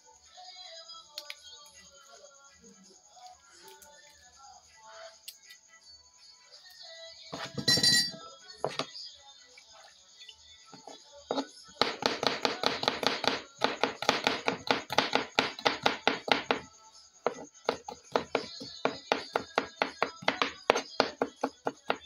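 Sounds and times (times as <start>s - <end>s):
knife chopping on wooden board: 11.3s - 16.6s, 17.3s - 22.0s.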